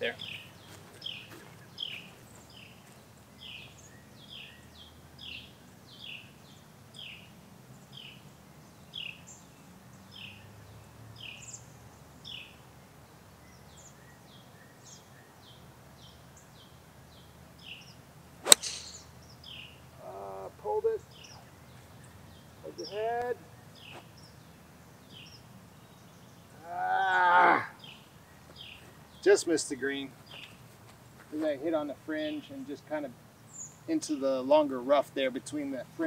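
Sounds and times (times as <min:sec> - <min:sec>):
bird chirping: 0:00.0 - 0:20.2, 0:20.8 - 0:26.6, 0:27.8 - 0:30.7
golf club striking ball: 0:18.4 - 0:19.1.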